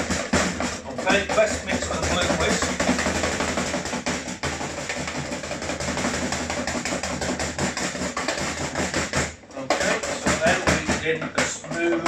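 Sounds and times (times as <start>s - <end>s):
whisk rattling in a bowl: 0.0s - 12.0s.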